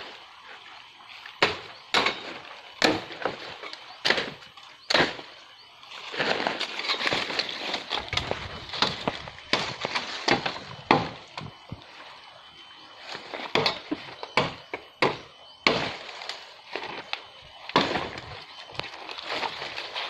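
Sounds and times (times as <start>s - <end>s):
dry sticks and leaves breaking: 5.9s - 11.6s.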